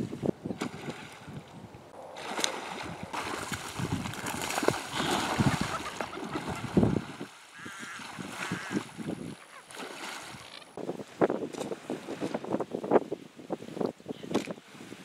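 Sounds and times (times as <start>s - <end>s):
water splashing: 0.5s - 10.8s.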